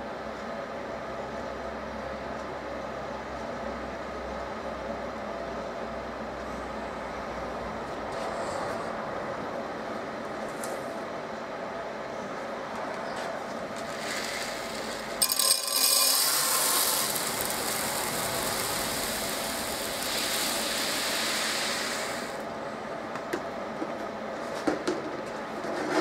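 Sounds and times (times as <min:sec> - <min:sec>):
grain pattering onto metal: 0:13.7 - 0:22.4.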